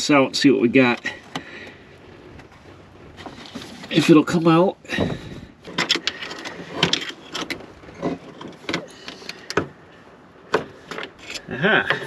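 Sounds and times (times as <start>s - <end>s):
fuel line fitting clicking and rubbing: 10.5s - 12.0s.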